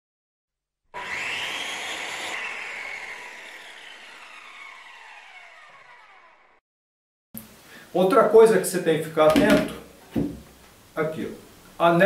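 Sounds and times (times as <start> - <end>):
synthetic whir: 1.0 - 6.6
tones sliding downward in pitch: 1.0 - 6.6.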